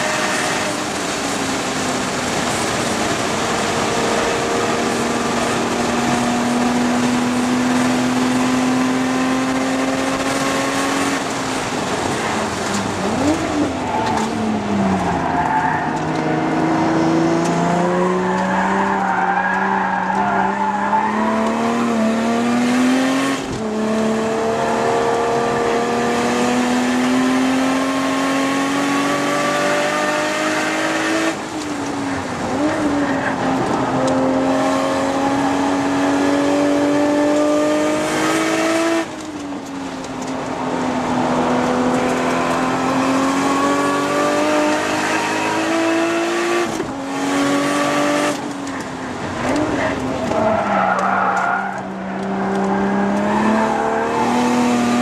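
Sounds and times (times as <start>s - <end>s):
car engine revving in cabin: 33.6s - 50.4s, 51.7s - 55.0s.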